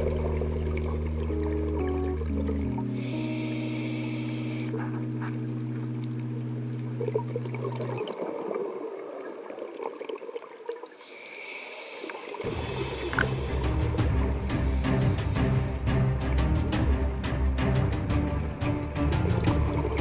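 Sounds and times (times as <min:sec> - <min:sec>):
bubbles gurgling: 0:00.0 - 0:03.2, 0:04.6 - 0:11.0
held music chord: 0:00.0 - 0:07.5
scuba regulator breathing underwater: 0:02.8 - 0:05.6, 0:11.0 - 0:13.6.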